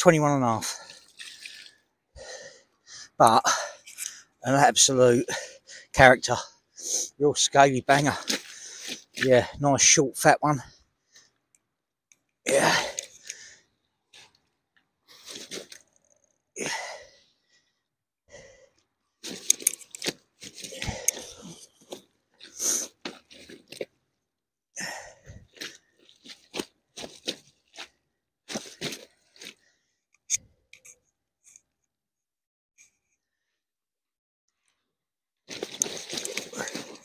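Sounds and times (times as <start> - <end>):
fish thrashing and slapping: 0.9 - 1.8
hands and clothing rustling: 35.5 - 37.0.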